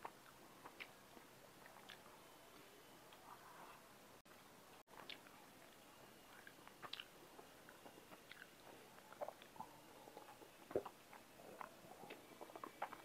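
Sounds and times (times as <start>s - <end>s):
chewing clicks: 1.6s - 3.2s, 4.9s - 13.0s.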